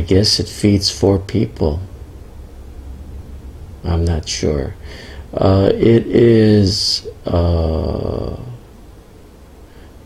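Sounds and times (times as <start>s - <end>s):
man's drawn-out hesitation sound: 3.5s - 8.8s.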